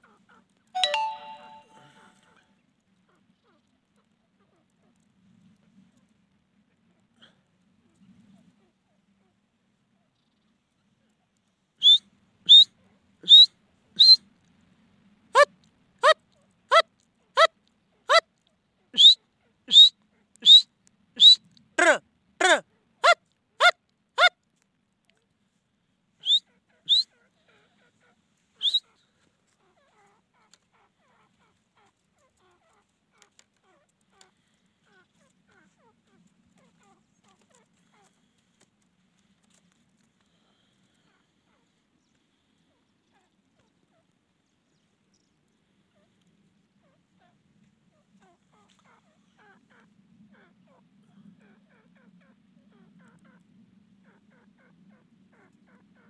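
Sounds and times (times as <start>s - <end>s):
francolin calling: 0.8s - 2.2s, 11.8s - 14.2s, 15.4s - 16.8s, 19.0s - 20.6s, 21.2s - 22.0s, 26.2s - 27.1s, 28.6s - 28.8s
francolin harsh calls: 11.8s - 14.2s
soft bird clucking: 11.8s - 14.2s, 15.4s - 18.3s, 19.0s - 20.6s, 21.2s - 24.3s, 26.2s - 38.9s.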